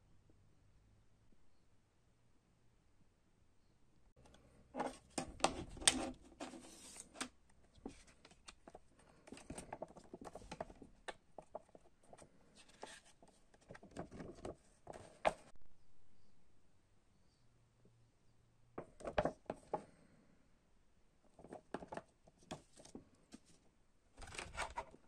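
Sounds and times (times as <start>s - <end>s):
plastic case clicking and creaking: 4.2s - 12.9s
paper poster rustling: 4.8s - 15.5s, 24.2s - 25.0s.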